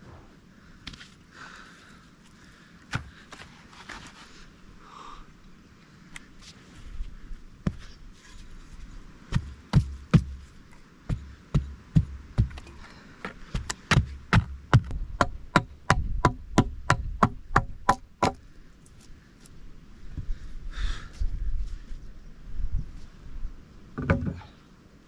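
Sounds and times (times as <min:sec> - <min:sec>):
hatchet striking wood: 0:13.5 - 0:18.4.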